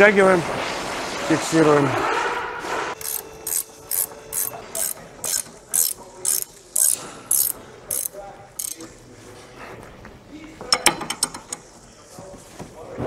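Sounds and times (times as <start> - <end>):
ratchet wrench clicking: 3.0 - 8.9.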